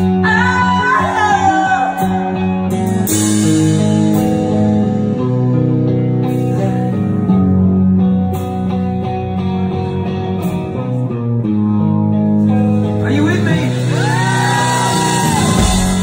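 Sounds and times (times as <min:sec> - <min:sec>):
bass and drums: 0:00.0 - 0:16.0
electric guitar chords: 0:00.0 - 0:16.0
singer wailing: 0:00.1 - 0:02.5, 0:13.7 - 0:16.0.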